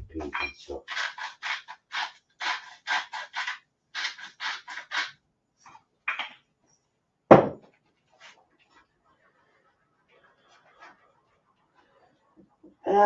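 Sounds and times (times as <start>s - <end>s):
sharp knock: 7.3s - 7.6s.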